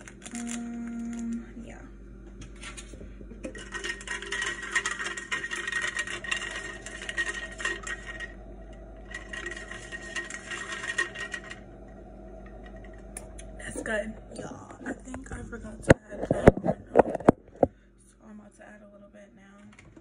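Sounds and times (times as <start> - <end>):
ice cubes clinking in a glass: 3.5 - 8.4, 9.1 - 11.6.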